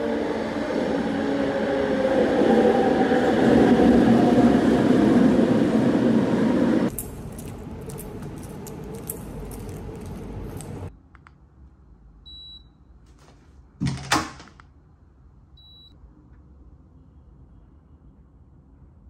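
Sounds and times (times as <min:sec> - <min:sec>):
train pulling into station: 0:00.0 - 0:06.9.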